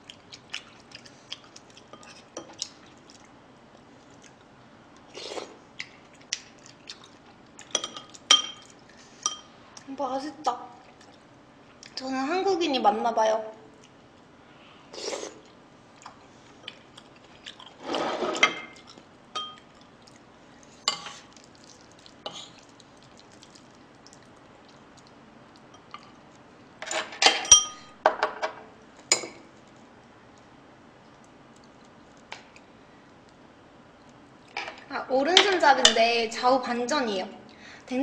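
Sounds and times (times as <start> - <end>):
cutlery clinking on a plate: 26.8 - 29.4.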